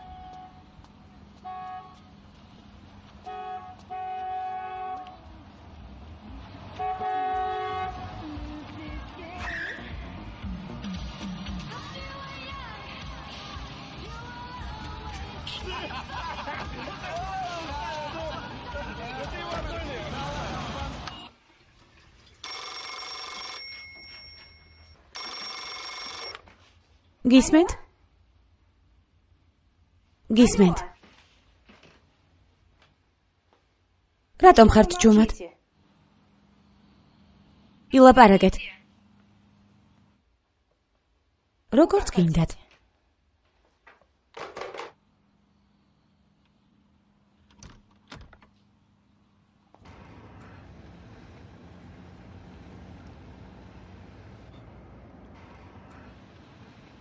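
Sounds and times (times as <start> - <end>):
car horn honking: 0.0 - 0.7, 1.4 - 2.1, 3.2 - 5.3, 6.7 - 8.4, 16.7 - 21.3
telephone bell ringing: 22.4 - 26.7.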